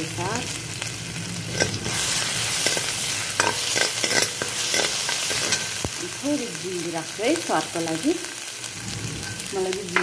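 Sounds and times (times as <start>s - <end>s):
oil sizzling in a wok: 0.0s - 10.0s
ladle scraping a pan: 1.5s - 5.8s.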